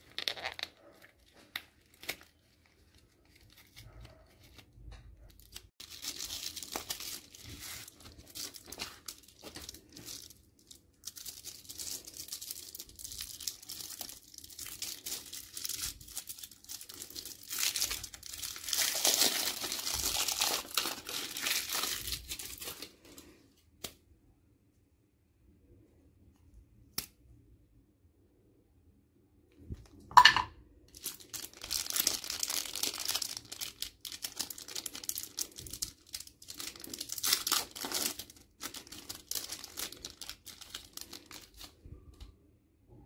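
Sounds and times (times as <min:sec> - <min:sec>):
wrapper tearing and crinkling: 0:00.0 - 0:04.7, 0:05.3 - 0:23.2, 0:30.9 - 0:41.8.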